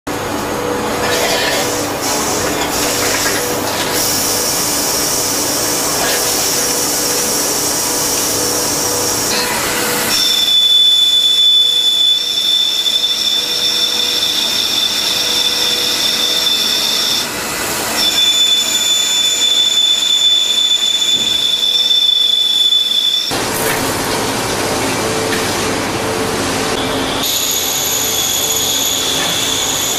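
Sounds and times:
lathe cutting tool whine: 0.1s - 29.9s
machine hiss: 1.0s - 10.6s.

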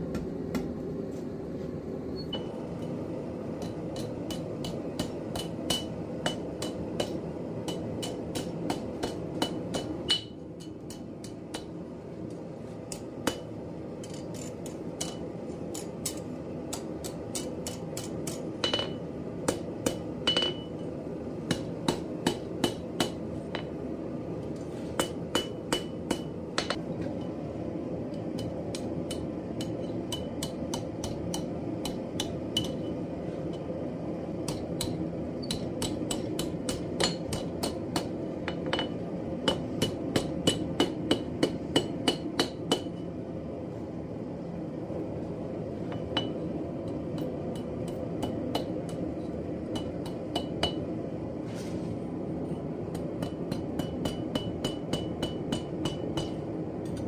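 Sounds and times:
hammer ringing on an anvil: 17.4s - 19.0s, 20.2s - 20.8s, 53.2s - 56.4s.

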